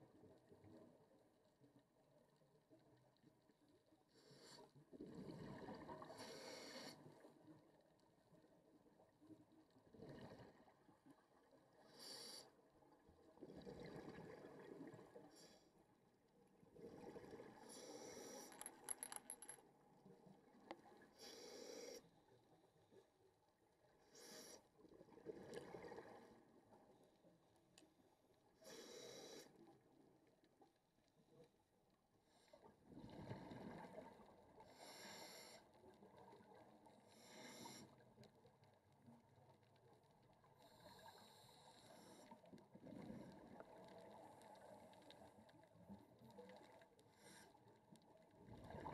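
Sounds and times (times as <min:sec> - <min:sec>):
scuba breathing underwater: 0:04.2 - 0:07.2, 0:16.8 - 0:18.8, 0:21.2 - 0:22.1, 0:28.6 - 0:29.7, 0:34.6 - 0:35.8, 0:37.1 - 0:38.0.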